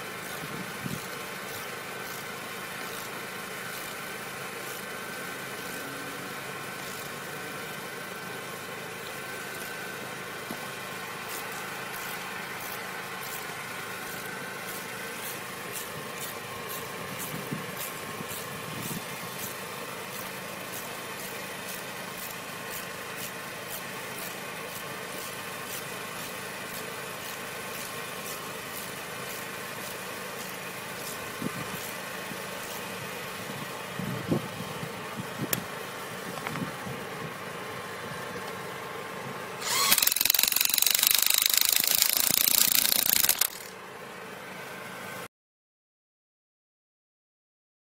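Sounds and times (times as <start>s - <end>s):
engine idling: 0.0s - 45.2s
hand wrench ticking: 39.6s - 43.7s.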